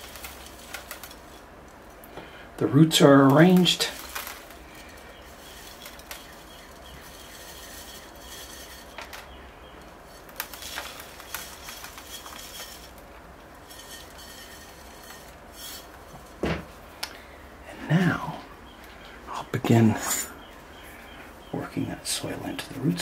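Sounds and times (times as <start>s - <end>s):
soil trickling from a scoop: 0.0s - 1.4s, 2.9s - 9.3s, 9.9s - 16.4s
grains clinking on metal scoop: 0.0s - 1.8s, 2.7s - 16.4s.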